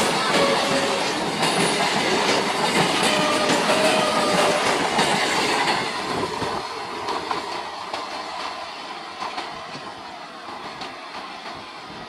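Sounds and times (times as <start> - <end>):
faint squeal of train wheels: 0.0 - 6.6
train wheels clattering over rail joints: 0.0 - 12.0.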